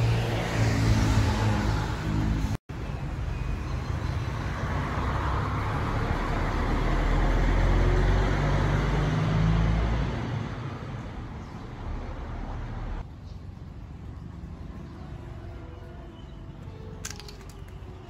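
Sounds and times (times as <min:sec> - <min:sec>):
motor vehicle passing: 0:00.0 - 0:02.6, 0:04.4 - 0:16.0.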